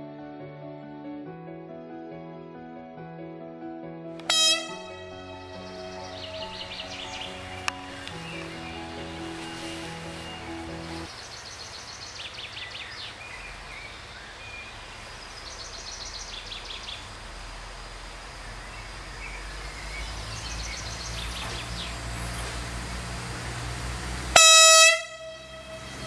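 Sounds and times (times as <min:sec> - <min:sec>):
train horn blast: 0:04.2 - 0:11.1, 0:24.3 - 0:26.0
train rumble: 0:04.2 - 0:11.2, 0:13.4 - 0:26.0
birds singing: 0:04.3 - 0:17.2, 0:18.5 - 0:22.6.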